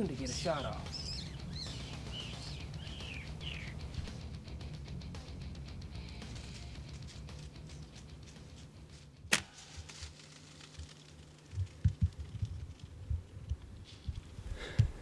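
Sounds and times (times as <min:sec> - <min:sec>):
bowstring crack: 0:06.2 - 0:11.9
handling thumps and knocks: 0:10.8 - 0:15.0.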